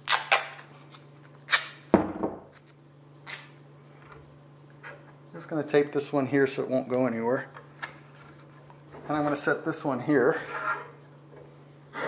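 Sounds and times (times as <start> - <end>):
duct tape ripping off roll: 0.0 - 0.6, 1.4 - 1.9, 2.6 - 3.6.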